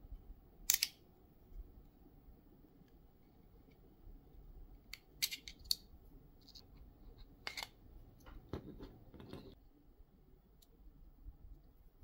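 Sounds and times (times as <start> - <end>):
pry tool clicks: 0.7 - 1.0.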